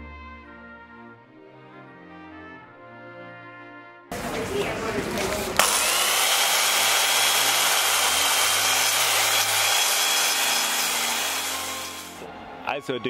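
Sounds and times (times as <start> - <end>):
electric chainsaw cutting wood: 5.6 - 12.2.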